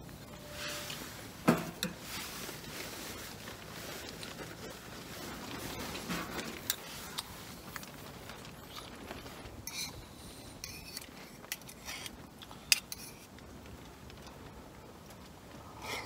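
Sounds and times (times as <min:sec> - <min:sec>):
metal spoon scraping metal pot: 0:00.3 - 0:02.0.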